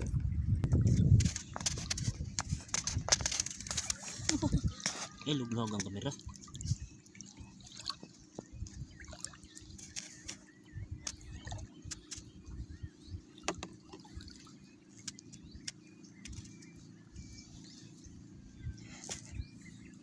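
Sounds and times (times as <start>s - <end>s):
seawater sloshing and dripping: 0.7s - 12.6s, 13.2s - 18.2s
small splashes: 1.2s - 12.3s, 13.4s - 16.7s.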